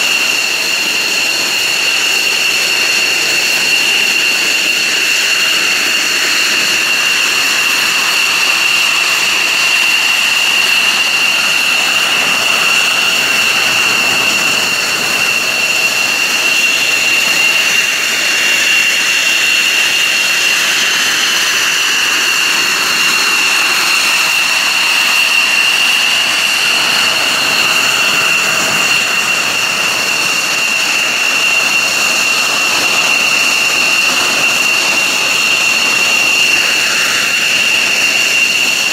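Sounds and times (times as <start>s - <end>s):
jet engine high-pitched whine: 0.0s - 38.9s.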